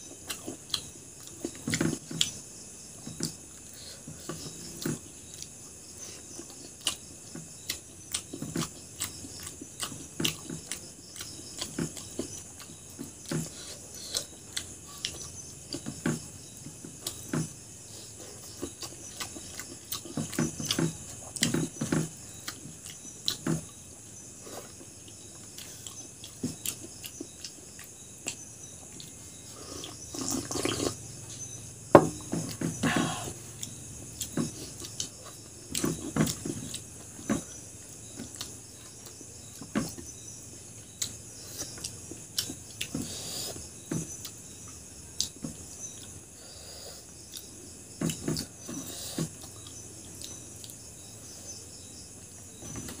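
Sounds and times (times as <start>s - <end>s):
chewing and mouth sounds: 6.2s - 16.0s, 24.5s - 31.0s.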